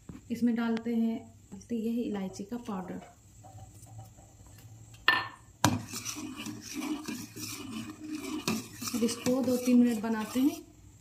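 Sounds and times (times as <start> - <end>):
ladle scraping metal pot: 5.6 - 10.7.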